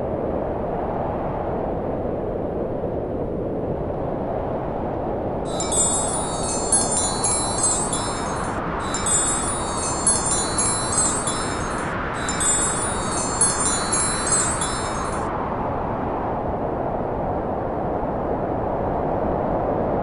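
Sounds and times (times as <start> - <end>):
bright high chiming: 5.5 - 15.3.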